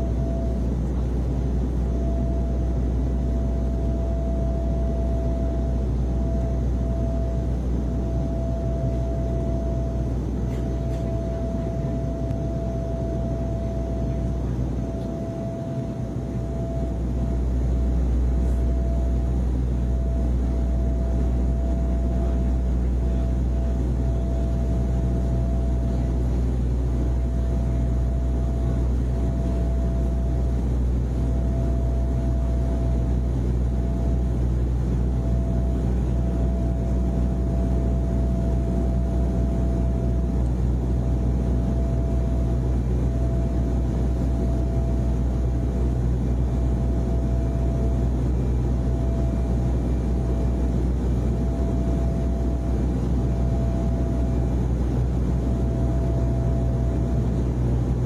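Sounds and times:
airliner engine and airflow drone: 0:00.0 - 0:58.0
thin steady whine: 0:00.0 - 0:58.0.

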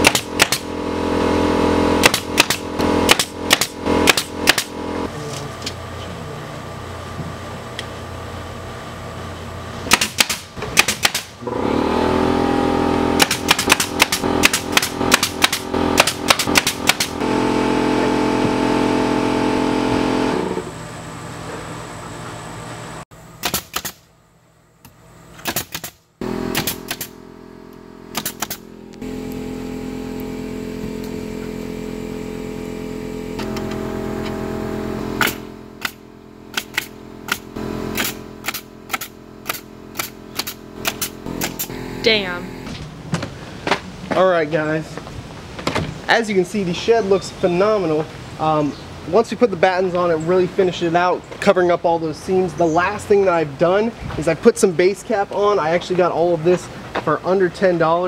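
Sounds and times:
nail gun firing into wood: 0:00.0 - 0:00.7, 0:02.0 - 0:04.8, 0:09.9 - 0:11.4, 0:13.2 - 0:17.2, 0:23.4 - 0:24.1, 0:25.4 - 0:27.2, 0:28.1 - 0:28.6, 0:35.2 - 0:41.7
air compressor humming: 0:00.0 - 0:43.9.

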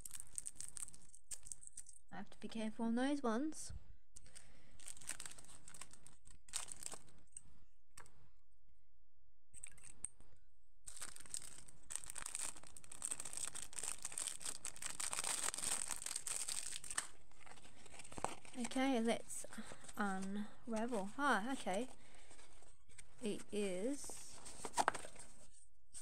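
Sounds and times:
plastic wrapping crinkling and tearing: 0:00.0 - 0:02.0, 0:04.2 - 0:07.3, 0:10.9 - 0:18.9, 0:24.4 - 0:25.4.

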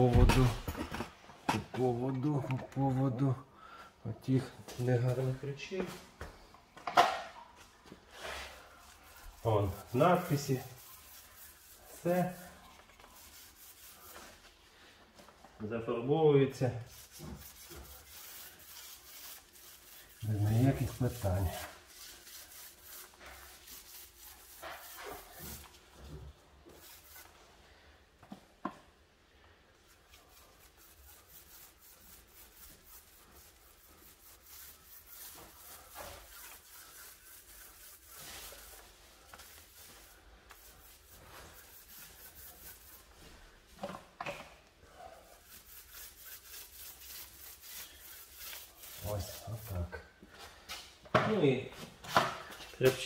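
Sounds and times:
paintbrush rubbing strokes: 0:07.6 - 0:15.4, 0:16.6 - 0:27.9, 0:29.7 - 0:43.8, 0:44.8 - 0:51.0.

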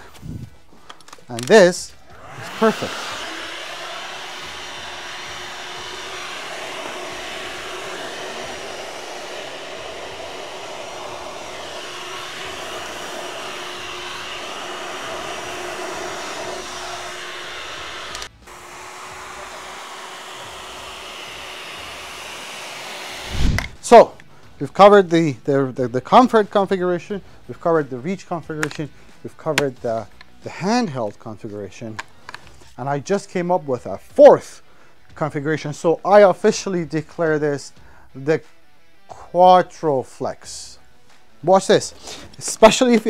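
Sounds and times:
cordless vacuum running: 0:00.0 - 0:24.1.

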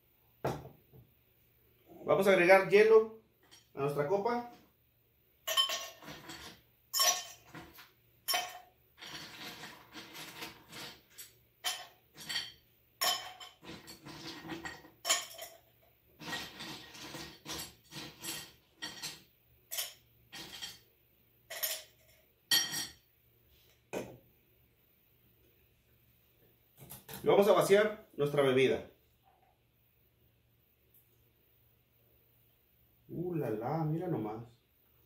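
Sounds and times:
ice cubes clinking in glass: 0:05.5 - 0:15.6.

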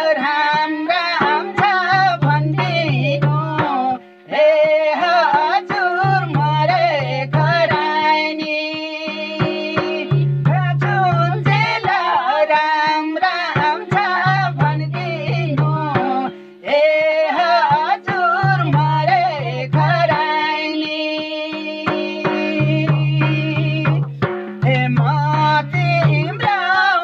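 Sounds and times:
man and woman singing: 0:00.0 - 0:27.0
barrel drum strokes: 0:00.2 - 0:16.3.

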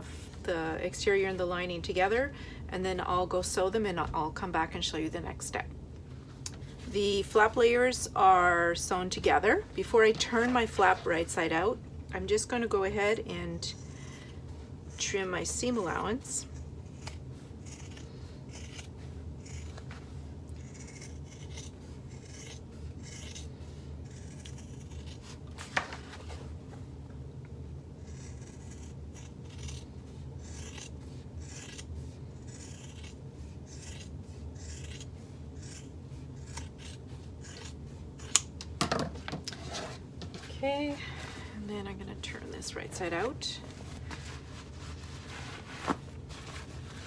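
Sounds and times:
faint steady hum: 0:00.0 - 0:47.0
scissors snipping fabric: 0:32.5 - 0:38.5.

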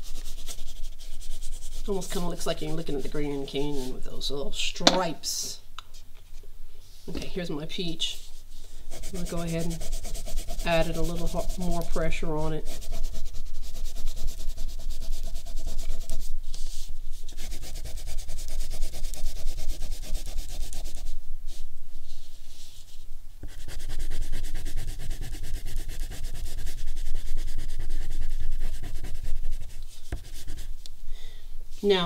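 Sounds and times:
crayon scribbling on paper: 0:00.0 - 0:03.9, 0:08.9 - 0:21.1, 0:23.4 - 0:30.8.

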